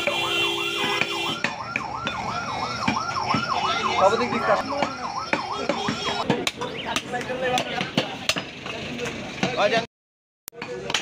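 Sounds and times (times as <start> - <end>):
siren wailing yelp: 0.0 - 7.0.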